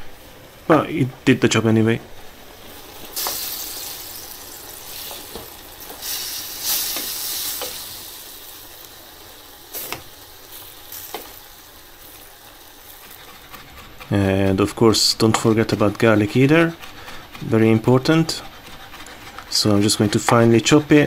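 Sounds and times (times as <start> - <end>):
meat sizzling in a pan: 2.2 - 13.2.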